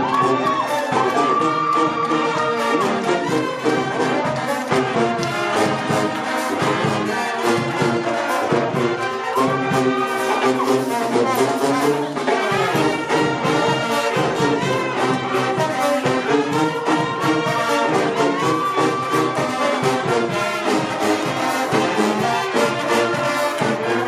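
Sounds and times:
brass band playing: 0:00.0 - 0:24.0.

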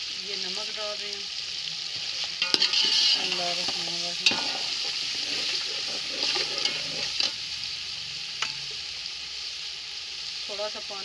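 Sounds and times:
chicken sizzling in hot fat: 0:00.0 - 0:11.0
metal spatula scraping a pot: 0:02.0 - 0:07.4.

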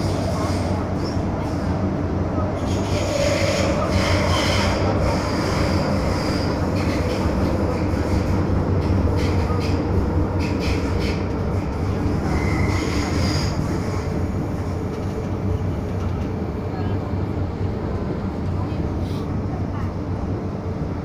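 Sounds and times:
train wheels rumbling: 0:00.0 - 0:21.0
high-pitched wheel squeals: 0:12.2 - 0:14.0.

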